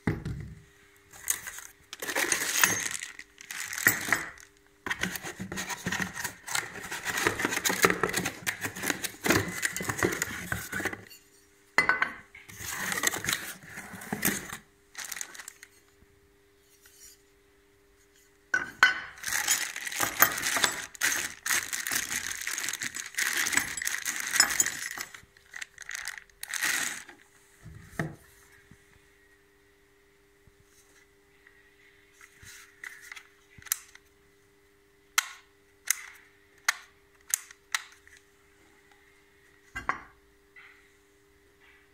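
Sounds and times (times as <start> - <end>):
cardboard and plastic rustling: 1.1 - 11.1, 12.5 - 15.8, 19.2 - 28.4
metal parts clinking: 1.2 - 4.5, 19.2 - 27.1.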